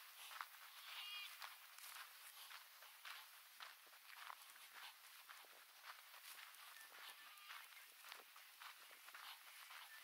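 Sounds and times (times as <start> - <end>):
faint footsteps: 0.0 - 10.0.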